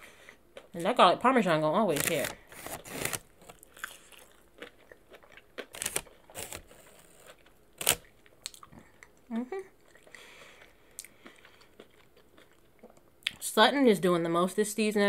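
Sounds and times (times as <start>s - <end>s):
crunchy chewing: 2.6s - 9.2s, 9.8s - 13.0s
person humming: 9.3s - 9.7s.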